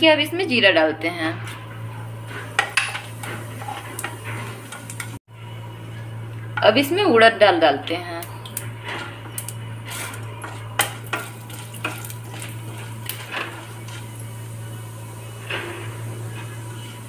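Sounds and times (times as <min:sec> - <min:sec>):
light sizzle: 0:00.0 - 0:17.0
low hum: 0:00.0 - 0:17.0
wooden spatula scraping a pan: 0:01.4 - 0:05.1, 0:08.8 - 0:17.0.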